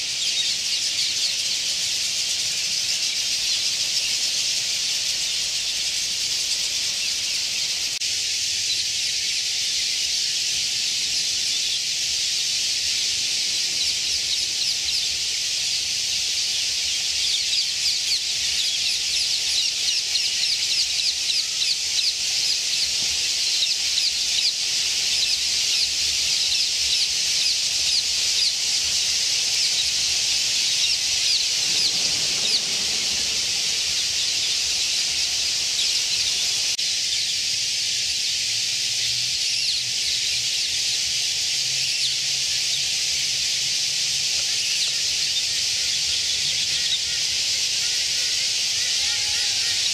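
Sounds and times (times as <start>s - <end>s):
flock of small birds chattering: 0.0s - 49.9s.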